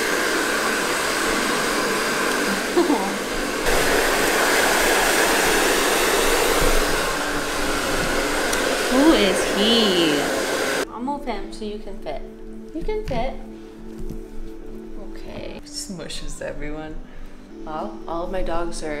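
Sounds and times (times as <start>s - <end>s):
hair dryer blowing: 0.0s - 10.9s.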